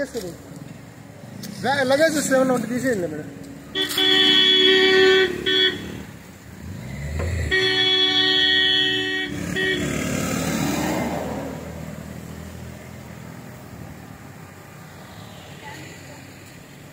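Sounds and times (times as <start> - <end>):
passing vehicle engine: 0.0 - 16.9
vehicle horn honking: 3.7 - 6.1, 7.4 - 10.0.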